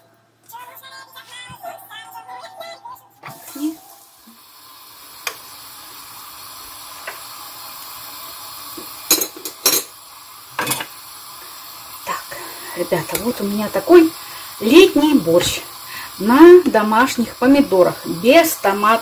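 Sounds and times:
pot bubbling on stove: 0:04.2 - 0:19.0
plate and utensils clattering: 0:09.1 - 0:10.0, 0:10.6 - 0:10.9.

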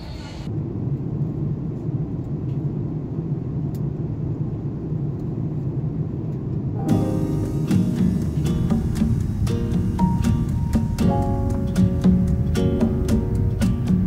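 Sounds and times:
jet engine and airflow rumble: 0:00.0 - 0:14.0
acoustic guitar music: 0:06.8 - 0:14.0.

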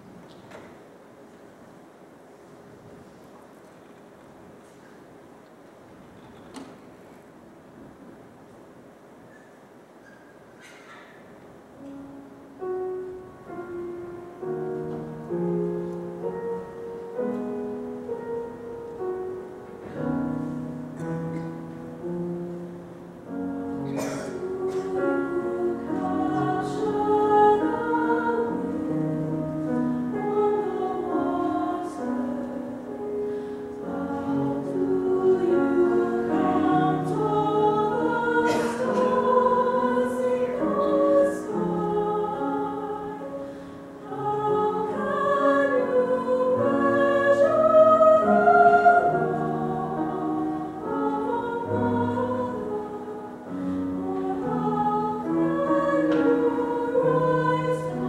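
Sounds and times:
mixed choir singing: 0:19.0 - 0:58.0.

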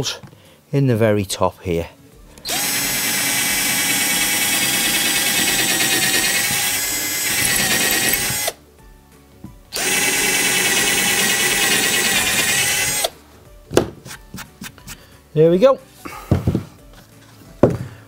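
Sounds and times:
cordless drill boring into wood: 0:02.5 - 0:08.6, 0:09.8 - 0:13.1.

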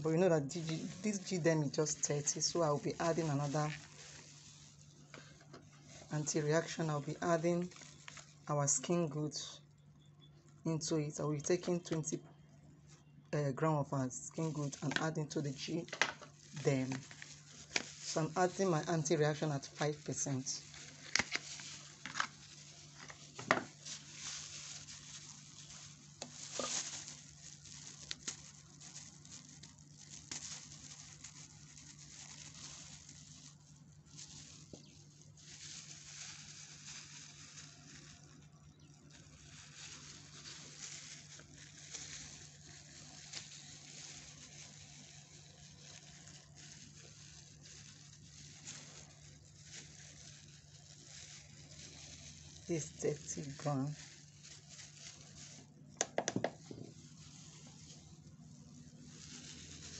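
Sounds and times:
plastic gloves crinkling: 0:00.0 - 0:59.9
tube being squeezed: 0:20.8 - 0:24.8, 0:26.1 - 0:29.3.

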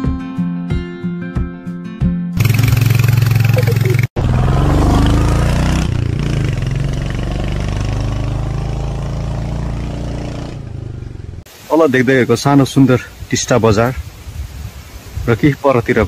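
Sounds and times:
motorcycle engine running: 0:02.4 - 0:11.4.

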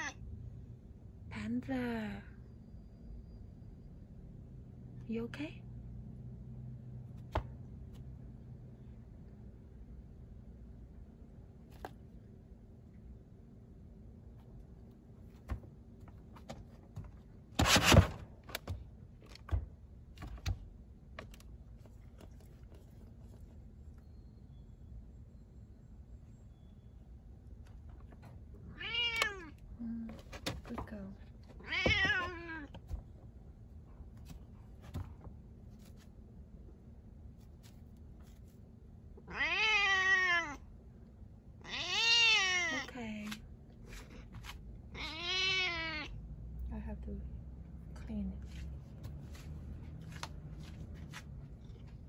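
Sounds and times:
cat meowing: 0:00.0 - 0:00.2, 0:28.7 - 0:29.6, 0:31.6 - 0:32.8, 0:39.2 - 0:40.6, 0:41.6 - 0:42.9, 0:44.9 - 0:46.2
cat scraping in litter tray: 0:17.6 - 0:18.7.

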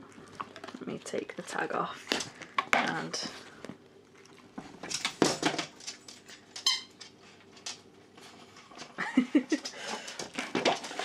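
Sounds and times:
squeaky dog toy: 0:06.6 - 0:07.0.

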